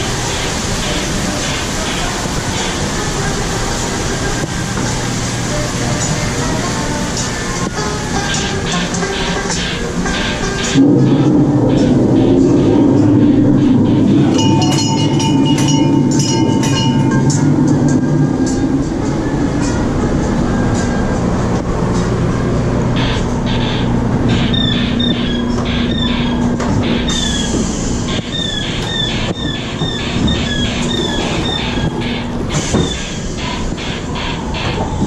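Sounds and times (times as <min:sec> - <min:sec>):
hiss: 0:00.0 - 0:14.2, 0:27.1 - 0:29.8
mechanical hum: 0:00.0 - 0:35.0
rhythmic high squeaking: 0:00.0 - 0:35.0.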